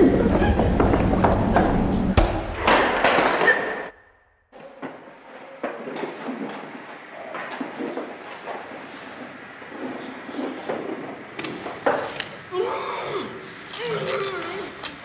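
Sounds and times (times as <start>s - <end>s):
heavy thud: 0.9s - 3.6s.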